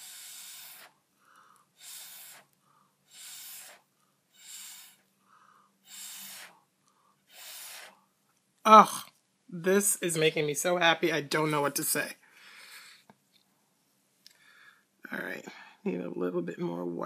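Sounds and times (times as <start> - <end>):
breath blown through straw: 0.0 - 1.0, 1.7 - 6.7, 7.3 - 8.0.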